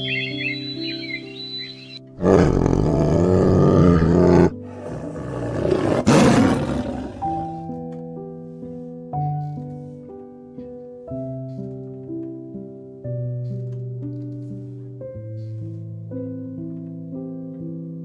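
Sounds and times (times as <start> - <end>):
soft piano music: 0.0 - 18.0
tiger roaring: 2.2 - 7.6.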